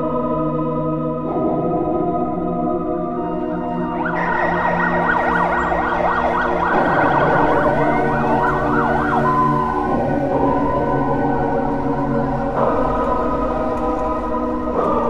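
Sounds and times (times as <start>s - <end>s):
organ-like music bed: 0.0s - 15.0s
warbling siren-like tone: 3.6s - 15.0s.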